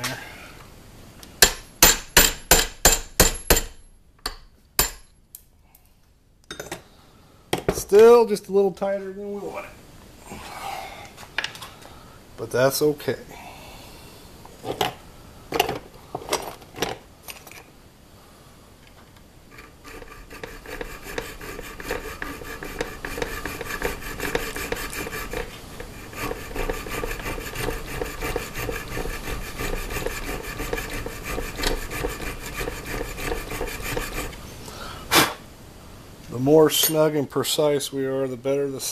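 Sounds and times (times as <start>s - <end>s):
hand file rasping on steel: 19.5s - 34.4s.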